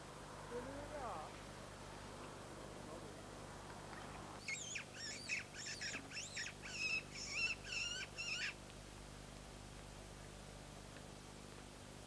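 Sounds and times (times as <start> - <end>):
high-pitched squealing calls: 4.4 - 8.6.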